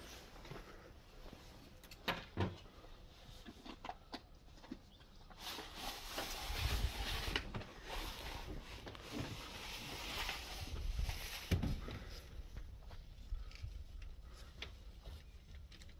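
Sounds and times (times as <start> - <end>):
footsteps outdoors: 0.0 - 15.9.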